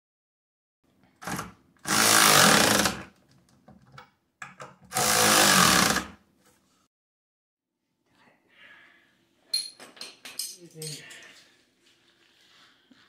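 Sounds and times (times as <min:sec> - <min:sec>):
impact wrench running: 0:01.9 - 0:03.0, 0:04.9 - 0:06.2.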